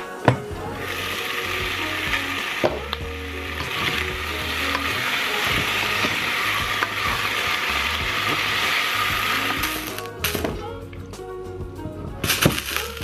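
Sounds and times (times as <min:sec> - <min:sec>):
garlic sizzling in a pot: 0:00.8 - 0:10.4.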